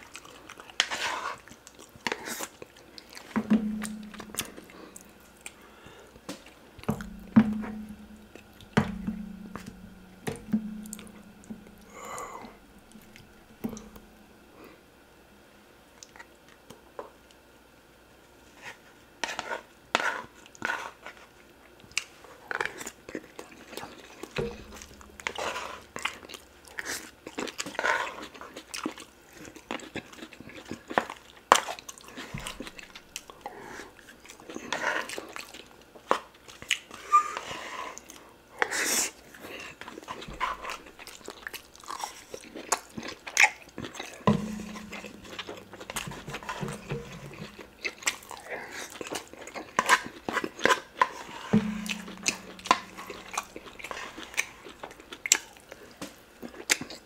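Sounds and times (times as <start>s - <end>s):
wet chewing and mouth smacking: 0.0s - 5.6s, 21.7s - 38.2s, 38.8s - 57.0s.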